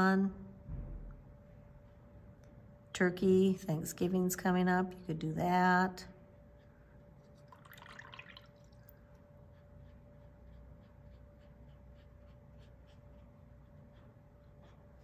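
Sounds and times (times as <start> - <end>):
faint steady hum: 0.0 - 15.0
wet brush dabbing on paper: 6.6 - 15.0.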